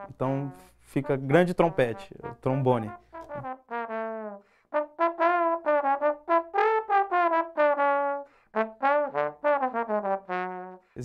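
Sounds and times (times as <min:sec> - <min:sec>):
slide trombone melody: 0:00.0 - 0:11.0.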